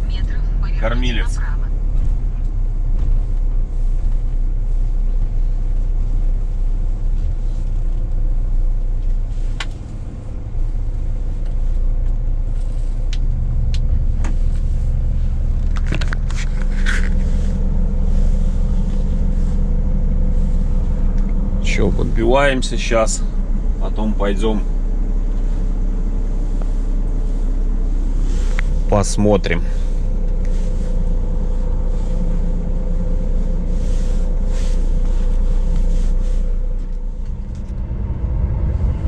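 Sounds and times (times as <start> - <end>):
diesel truck engine idling: 0.0 - 39.0.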